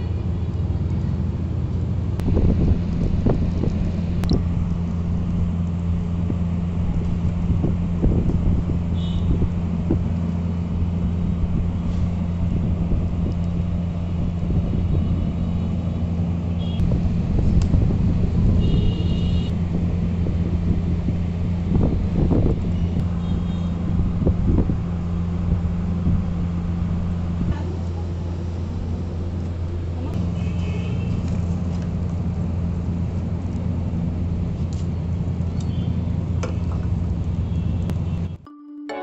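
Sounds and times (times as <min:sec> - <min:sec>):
low rumble: 0:00.0 - 0:30.6
constant hum: 0:00.0 - 0:38.4.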